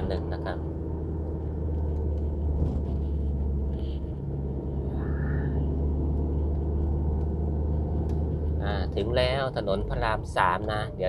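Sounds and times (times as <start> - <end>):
car engine and tyres rumbling: 0.0 - 11.0.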